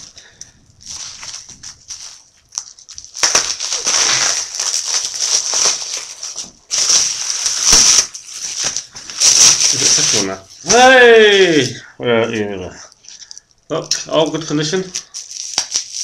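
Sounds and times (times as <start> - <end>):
small rustles: 0.0 - 10.7
packaging crinkling: 0.0 - 10.9, 13.0 - 16.0.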